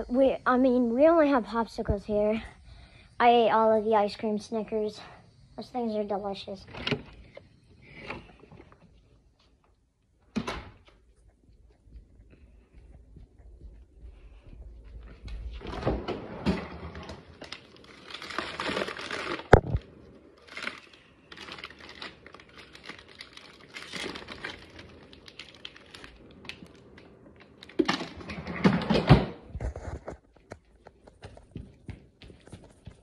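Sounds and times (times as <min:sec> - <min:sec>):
packaging crinkling: 0:17.3 - 0:27.9.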